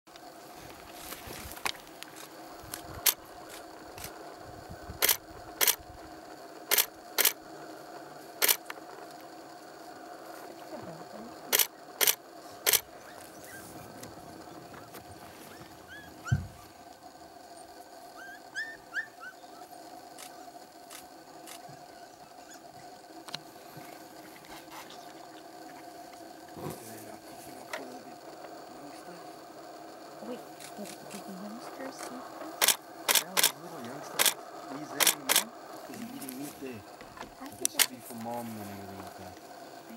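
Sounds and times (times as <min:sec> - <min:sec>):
camera shutter clicks: 0:05.0 - 0:05.8, 0:06.7 - 0:07.4, 0:08.4 - 0:08.7, 0:11.5 - 0:12.8, 0:32.6 - 0:33.6, 0:34.2 - 0:34.4, 0:35.0 - 0:35.5
low thump: 0:16.2 - 0:16.7.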